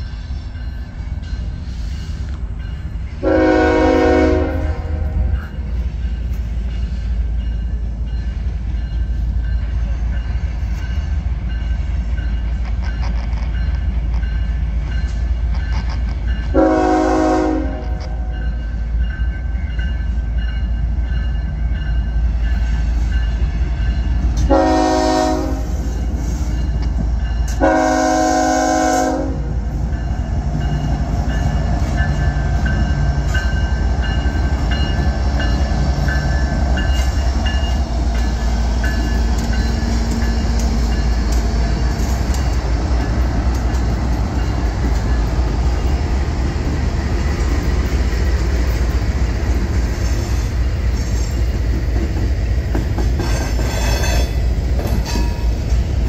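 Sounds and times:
diesel locomotive engines passing: 0.0s - 56.0s
locomotive air horn blasts: 3.2s - 5.4s, 16.5s - 18.4s, 24.5s - 25.9s, 27.6s - 29.6s
crossing signal bell ringing: 5.1s - 28.6s, 29.6s - 42.3s.

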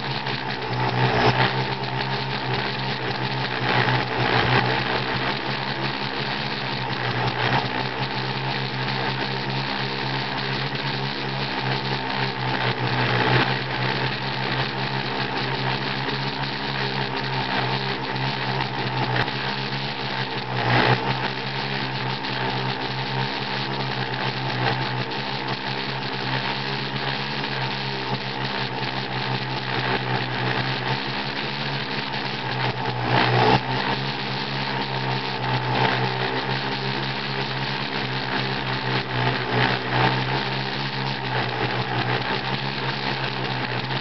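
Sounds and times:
drone motor whine: 0.0s - 44.0s.

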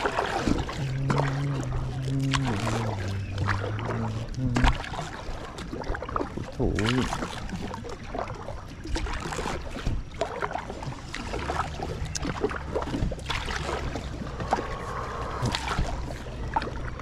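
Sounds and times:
low steady hum: 0.0s - 7.8s, 9.9s - 17.0s
water noises: 0.0s - 17.0s.

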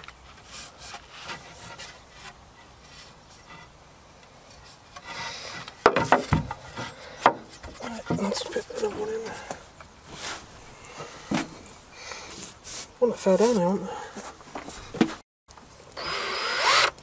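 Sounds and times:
sharp wooden knocks: 5.8s - 8.4s.

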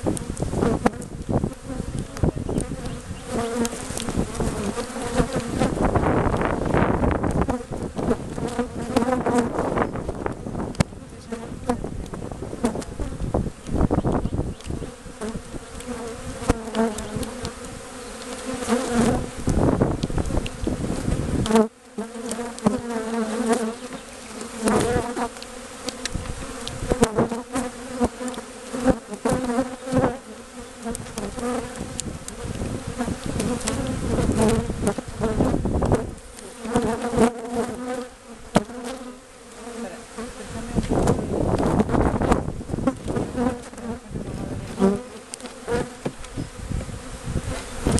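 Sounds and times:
bees buzzing: 0.0s - 47.9s.

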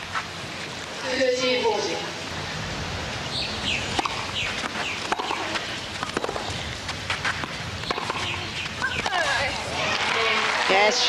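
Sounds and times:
background noise: 0.0s - 11.0s
tennis ball struck by rackets: 3.9s - 6.4s, 7.2s - 9.2s.

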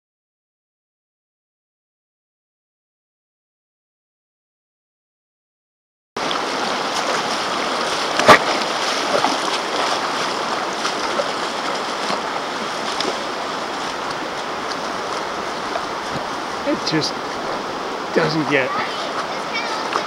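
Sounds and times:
river water rushing over rocks: 6.2s - 20.0s.

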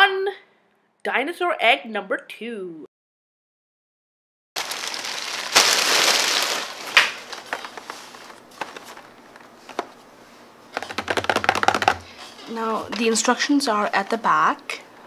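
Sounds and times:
cardboard boxes rustling: 4.6s - 10.0s
taps and scraping on boxes: 10.7s - 12.1s.

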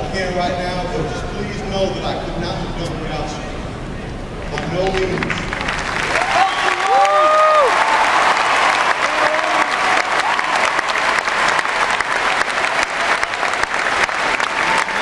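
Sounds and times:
crowd applauding and cheering: 4.5s - 15.0s.

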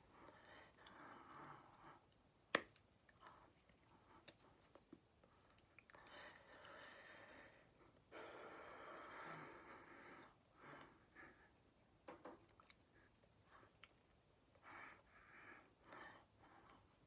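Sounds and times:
faint breathing: 5.9s - 11.6s, 14.5s - 17.0s
soft mouth noises: 12.4s - 14.2s.

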